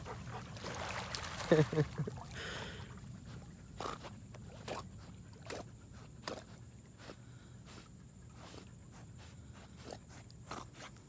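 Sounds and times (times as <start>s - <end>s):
water splashes from swimming dogs: 0.0s - 7.1s.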